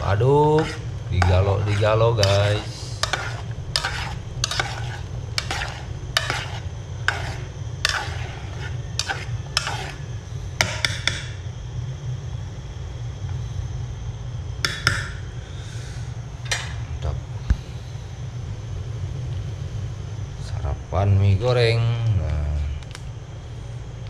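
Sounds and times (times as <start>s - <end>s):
metal spoon scraping a pot: 0.0s - 11.1s
gas burner rumble: 0.0s - 24.0s.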